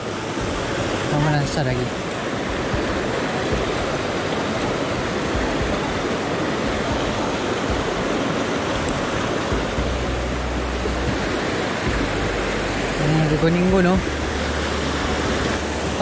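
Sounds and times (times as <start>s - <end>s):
stream rushing over boulders: 0.0s - 16.0s.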